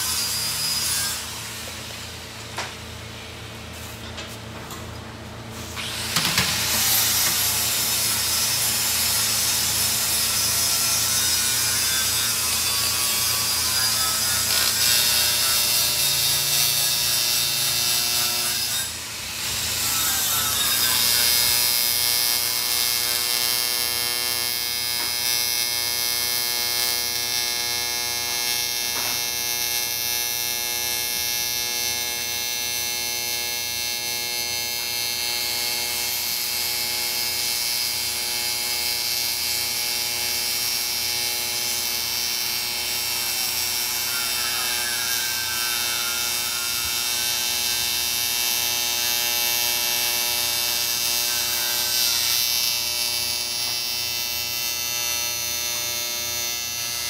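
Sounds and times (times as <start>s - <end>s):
electric power tool whining: 5.6s - 31.7s, 38.2s - 57.0s.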